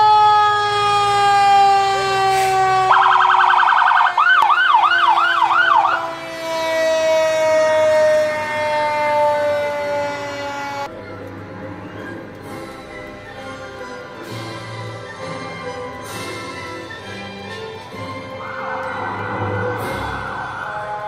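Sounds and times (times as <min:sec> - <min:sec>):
siren sliding down in pitch: 0:00.0 - 0:10.9, 0:18.3 - 0:21.0
warbling and yelping siren: 0:00.0 - 0:10.9, 0:18.4 - 0:21.0.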